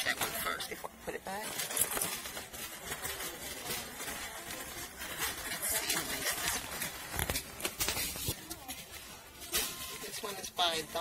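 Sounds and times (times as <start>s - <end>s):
handbag rustling and scraping: 1.3s - 10.4s.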